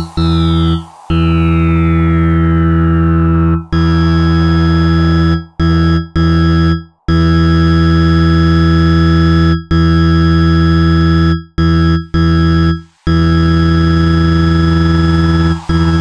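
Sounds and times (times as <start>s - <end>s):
falling synth sweeps: 0.0s - 9.0s, 13.0s - 16.0s
pulsing synthesized low tone: 0.0s - 16.0s.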